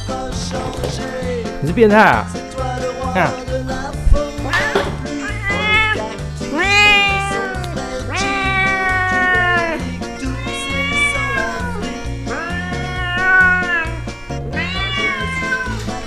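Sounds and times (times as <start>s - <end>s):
cat meowing: 4.5s - 16.0s.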